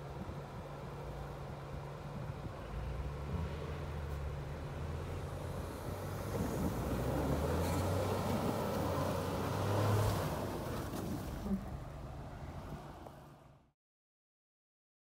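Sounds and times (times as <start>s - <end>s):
truck engines running under load: 0.0s - 13.6s
tires churning through snow: 2.1s - 13.5s.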